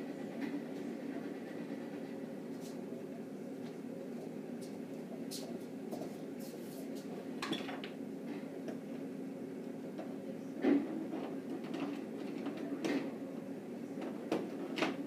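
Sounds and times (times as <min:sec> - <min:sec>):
steady low hum: 0:00.0 - 0:07.4.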